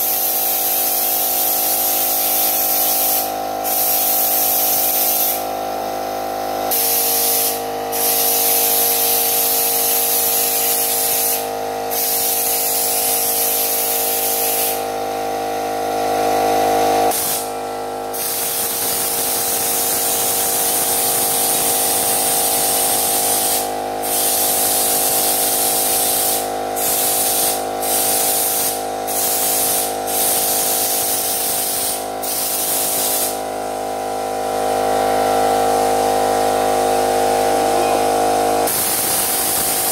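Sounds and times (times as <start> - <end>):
spray gun spraying: 0.0 - 5.5, 6.7 - 14.9, 17.1 - 33.5, 38.6 - 39.9.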